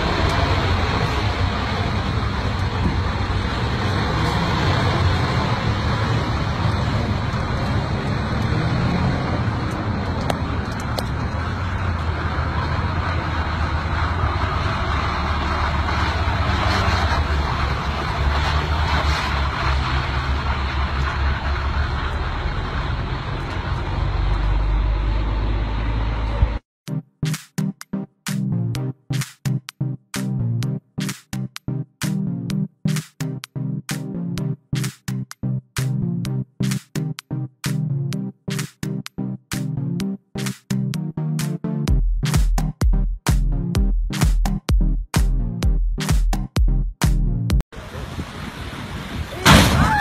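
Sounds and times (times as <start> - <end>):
tyres on snow: 0.0 - 26.5
truck engine rumbling: 0.0 - 50.0.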